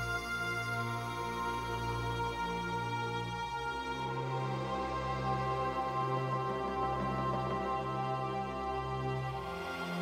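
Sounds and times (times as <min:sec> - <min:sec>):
slow background music: 0:00.0 - 0:10.0.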